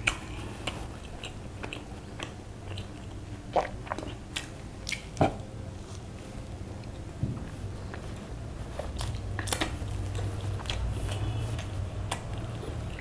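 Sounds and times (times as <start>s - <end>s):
wet chewing: 0.0s - 5.2s, 7.8s - 13.0s
lip smacks: 9.0s - 13.0s.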